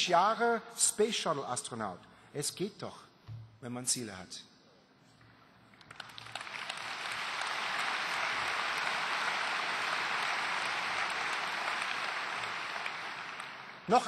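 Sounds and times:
large audience applauding: 5.8s - 14.0s.

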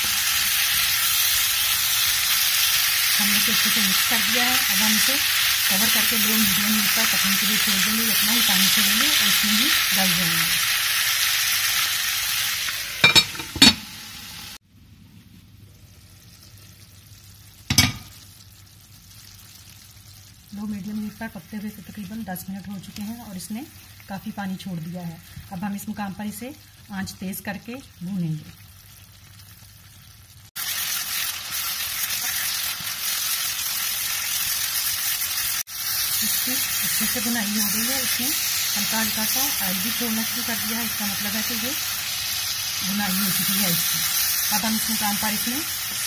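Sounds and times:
curry sizzling in a frying pan: 0.0s - 46.0s
glass lid clinking on pan: 13.0s - 13.8s, 17.7s - 18.1s.

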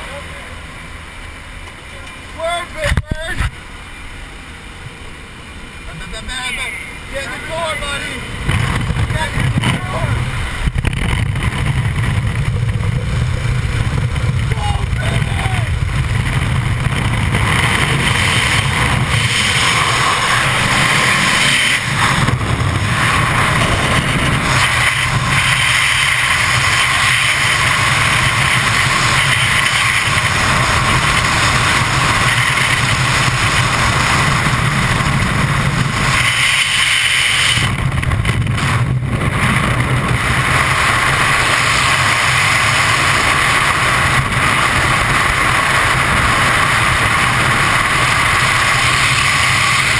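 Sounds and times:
loud wind rush: 2.2s - 49.9s.

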